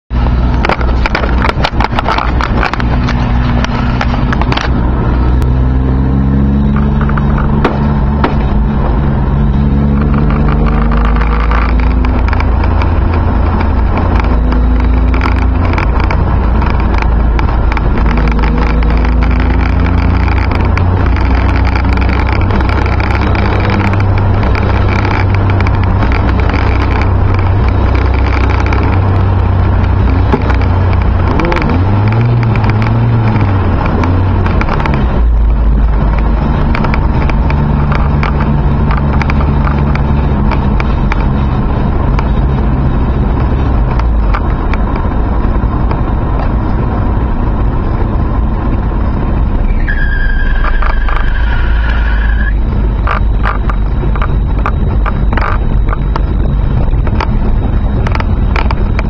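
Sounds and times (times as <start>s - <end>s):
car engine and road rumble: 0.0s - 59.0s
tyres on wet road: 0.1s - 59.0s
light ticks and rattles: 6.7s - 47.7s.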